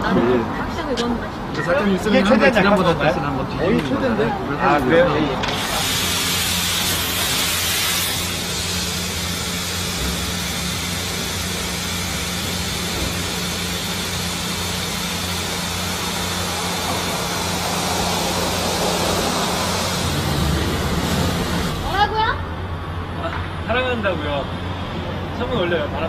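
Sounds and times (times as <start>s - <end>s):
car wash jets hissing: 5.4s - 22.6s.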